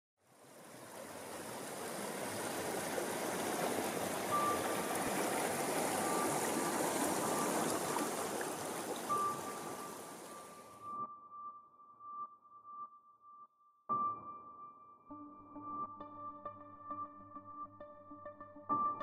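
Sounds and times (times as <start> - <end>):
creek water rushing over rocks: 0.4 - 10.7
thin high tone: 4.1 - 11.1.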